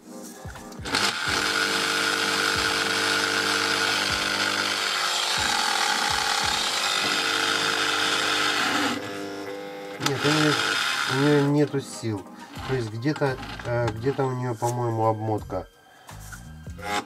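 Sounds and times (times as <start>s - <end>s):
electric drill whining: 0.8s - 11.7s, 12.5s - 14.3s, 16.7s - 17.0s.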